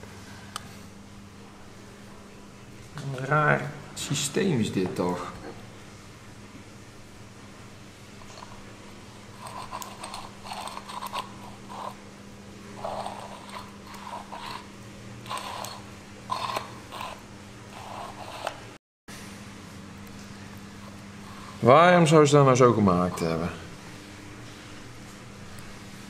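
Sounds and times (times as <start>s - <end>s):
steady low hum: 0.0s - 26.0s
scraping grease off metal: 12.8s - 17.2s.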